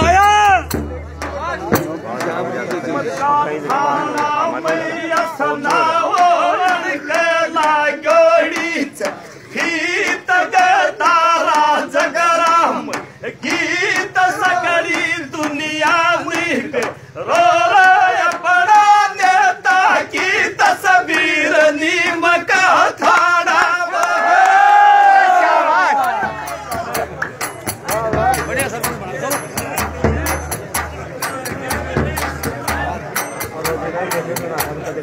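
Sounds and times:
frame drum strokes: 0.0 - 6.9, 26.0 - 35.0
men singing folk song: 2.1 - 35.0.

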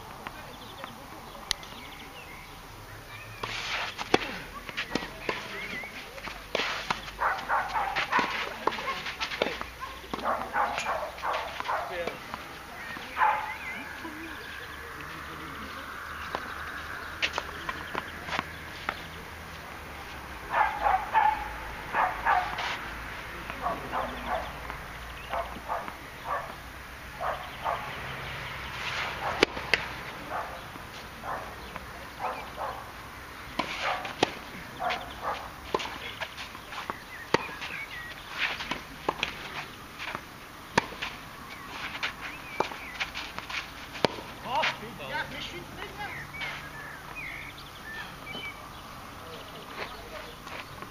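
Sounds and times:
shoe scuffs on clay court: 3.2 - 21.4, 22.0 - 26.6, 27.2 - 32.8, 33.5 - 48.6, 49.2 - 50.9
tennis ball bouncing: 3.4 - 13.6, 14.2 - 19.1, 28.6 - 44.8
racket striking ball: 6.5 - 13.2, 28.9 - 30.0, 33.5 - 37.8, 38.4 - 41.2, 41.8 - 44.8.

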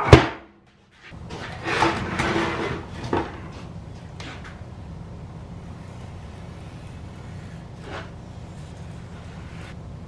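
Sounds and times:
steady low shop hum: 0.0 - 10.0
tools rustling and scraping: 0.9 - 4.6.

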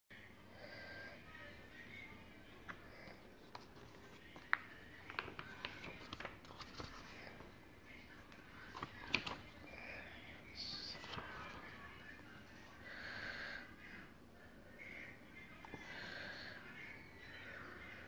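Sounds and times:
book pages rustling: 3.4 - 7.5, 8.3 - 9.5, 10.9 - 11.7.

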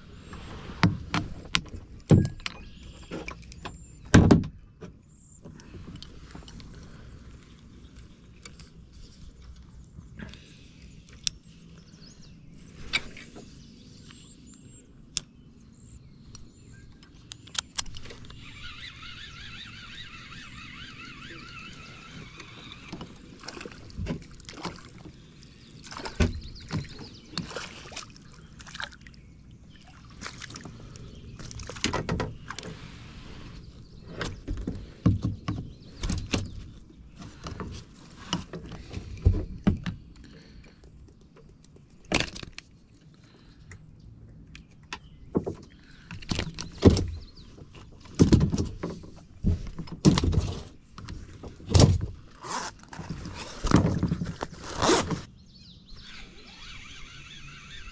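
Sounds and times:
fine steady whirring: 5.3 - 41.2, 55.9 - 57.9.

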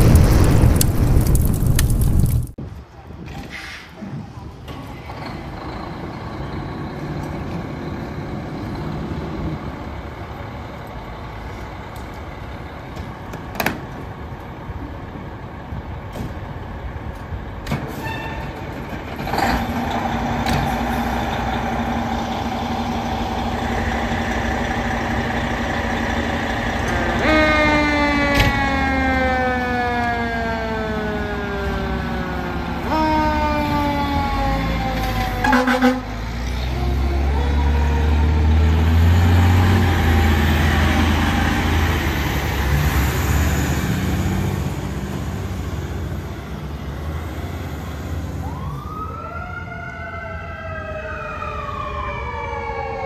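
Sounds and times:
diesel engines running: 3.1 - 49.3
siren wailing: 26.9 - 36.0, 48.3 - 53.0.

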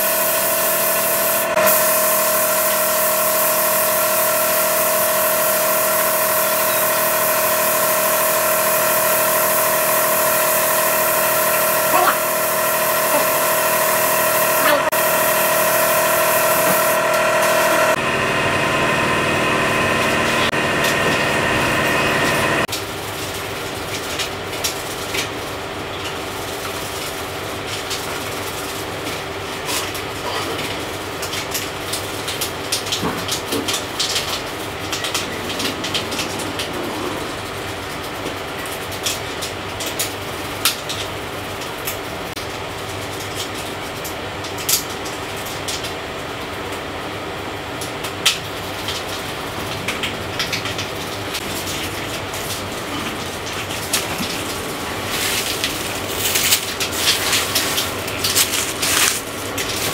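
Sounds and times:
steady hum: 0.0 - 22.7.

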